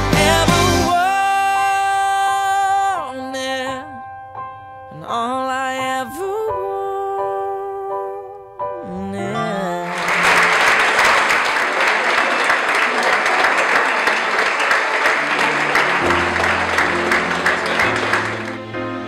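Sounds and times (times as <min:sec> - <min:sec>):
bass notes: 0:00.0 - 0:00.9
music: 0:00.0 - 0:10.6, 0:14.6 - 0:19.0
crowd clapping and cheering: 0:09.8 - 0:19.0.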